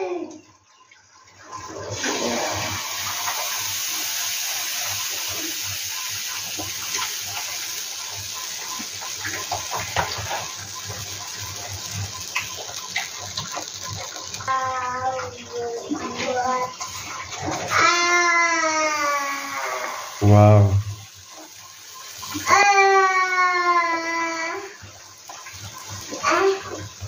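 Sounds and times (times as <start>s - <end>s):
batter sizzling on a hot pan: 2.0s - 15.7s, 16.4s - 27.0s
small crackles: 6.3s - 18.0s.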